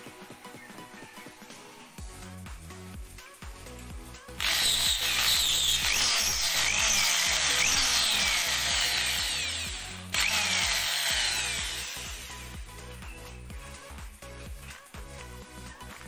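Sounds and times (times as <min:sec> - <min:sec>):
electric drill whining: 0:04.4 - 0:12.7.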